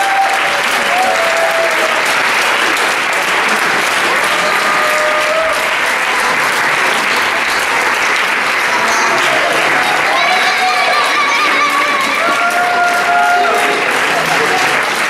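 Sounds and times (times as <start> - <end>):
audience applauding: 0.0 - 15.0
voices calling out: 8.5 - 15.0.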